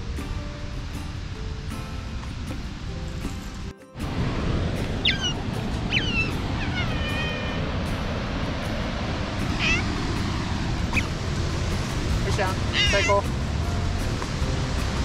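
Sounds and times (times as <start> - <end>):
steady rushing background: 0.0 - 15.0
otter chirping: 5.0 - 7.6, 9.6 - 9.9, 10.9 - 11.2, 12.6 - 13.2.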